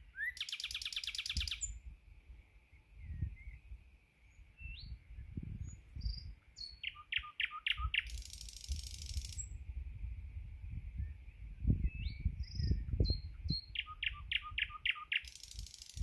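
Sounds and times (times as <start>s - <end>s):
bird singing whistles and rattle: 0.1s - 1.8s, 5.6s - 9.6s, 11.0s - 16.0s.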